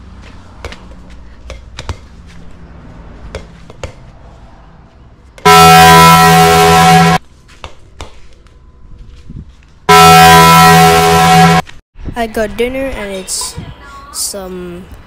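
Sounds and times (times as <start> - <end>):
rubber ball bouncing: 0.6 - 2.1, 3.3 - 4.1
loud horn blast: 5.4 - 7.2, 9.9 - 11.7.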